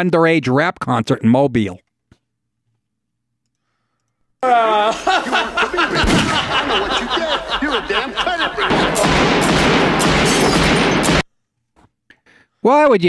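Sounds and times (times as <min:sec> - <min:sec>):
voices: 0:04.4 - 0:10.3
rapid gunfire volley: 0:05.8 - 0:11.2.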